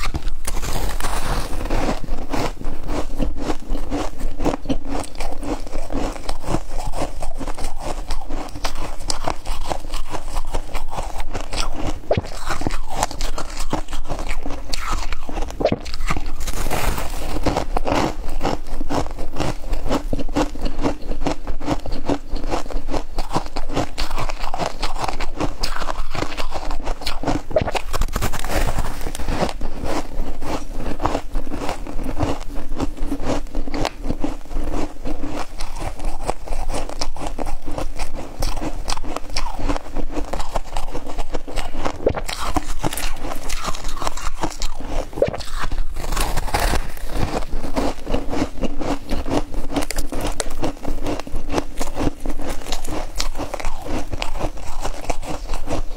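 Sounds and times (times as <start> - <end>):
crunching frost being chewed: 0.0 - 55.9.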